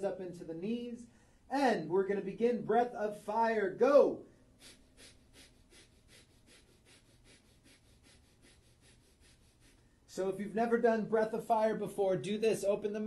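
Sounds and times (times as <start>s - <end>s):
man breathing rapidly: 1.1s - 1.5s, 4.4s - 10.1s.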